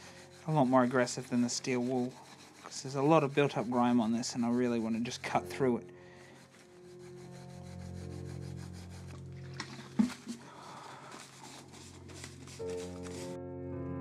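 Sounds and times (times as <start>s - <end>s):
scour pad scrubbing wood: 0.0s - 13.4s
soft background music: 0.1s - 14.0s.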